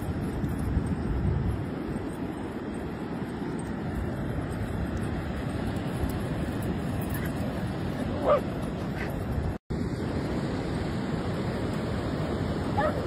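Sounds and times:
wind: 0:00.0 - 0:13.0
ocean surf: 0:02.0 - 0:13.0
dog yipping: 0:07.1 - 0:07.4, 0:08.1 - 0:09.1, 0:12.8 - 0:13.0
dog barking: 0:08.1 - 0:08.5, 0:12.8 - 0:13.0.

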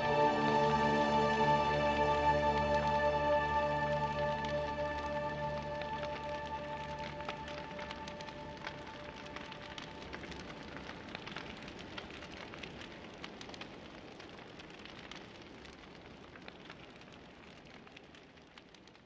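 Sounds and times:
crackling pattering noise: 0:00.0 - 0:19.0.

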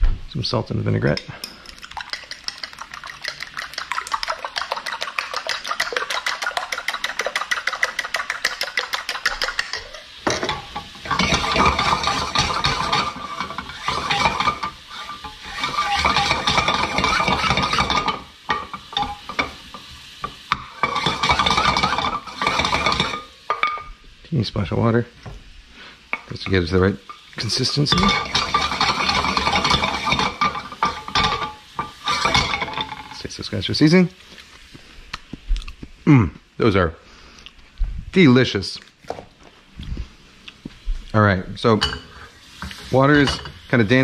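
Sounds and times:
fork beating eggs in bowl: 0:01.4 - 0:18.2, 0:27.4 - 0:32.8
wooden spoon scraping skillet: 0:03.7 - 0:23.6, 0:25.8 - 0:33.3, 0:41.6 - 0:44.0.

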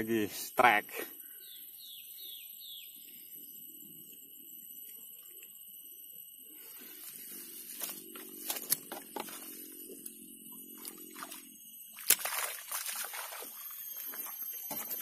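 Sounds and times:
water sloshing: 0:10.7 - 0:14.4
fish thrashing and splashing water: 0:10.7 - 0:14.5.

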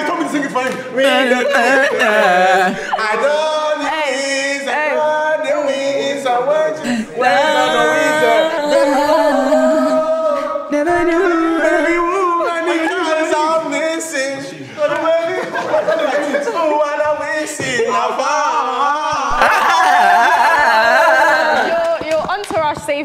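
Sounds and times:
group singing together: 0:00.0 - 0:13.9.

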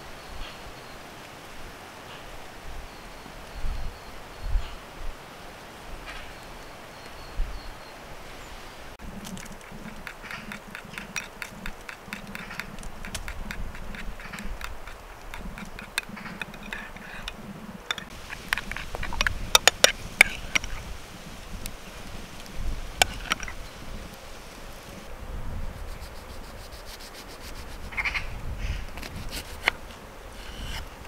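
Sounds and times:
spoon stirring thick dressing: 0:09.4 - 0:20.8.

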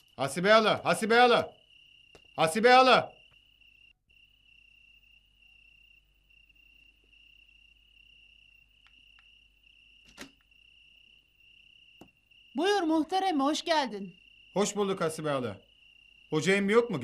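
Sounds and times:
crickets chirping: 0:00.0 - 0:17.0
sharp click: 0:10.0 - 0:10.5.

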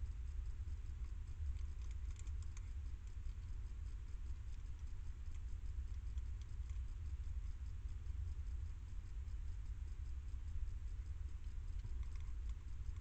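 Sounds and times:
steady low rumble: 0:00.0 - 0:13.0
hedgehog chewing: 0:01.6 - 0:03.2.

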